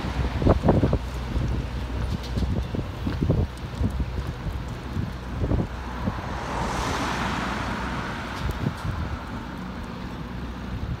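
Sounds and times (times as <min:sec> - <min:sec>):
wind buffeting microphone: 0:00.0 - 0:11.0
vehicle passing: 0:05.1 - 0:11.0.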